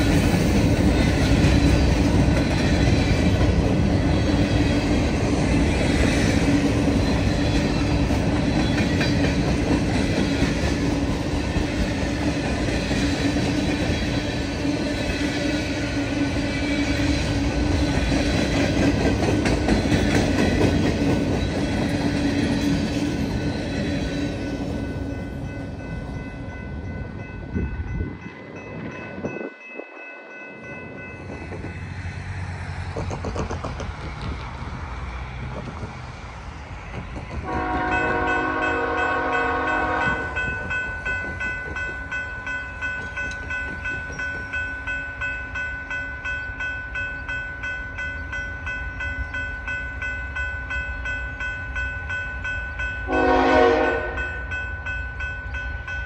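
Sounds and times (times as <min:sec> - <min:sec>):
freight train rumble and wheel clatter: 0:00.0 - 0:56.0
high ringing crossing bell: 0:23.1 - 0:31.9, 0:37.8 - 0:56.0
train air horn blasts: 0:37.4 - 0:40.4, 0:53.1 - 0:54.3.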